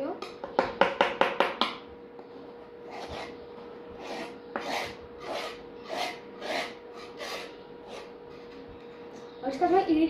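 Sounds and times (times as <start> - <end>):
painting knife scraping canvas: 2.9 - 3.4, 4.0 - 8.1.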